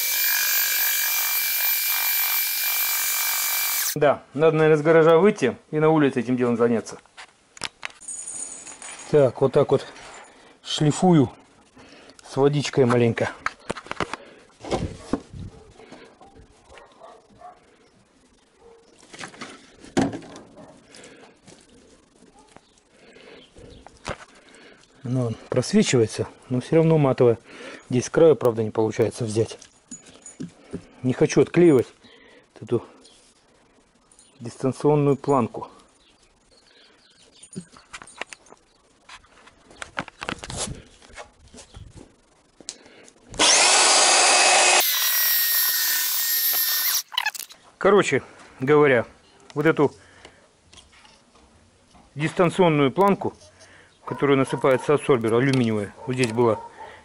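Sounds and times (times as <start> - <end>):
electric sander whining on glass: 0.0 - 4.0.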